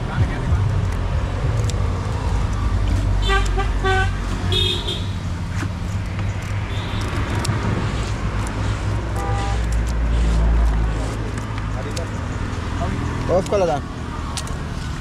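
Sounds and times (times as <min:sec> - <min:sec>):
road traffic engine rumble: 0:00.0 - 0:15.0
vehicle horn toots: 0:03.2 - 0:05.2, 0:09.1 - 0:09.7.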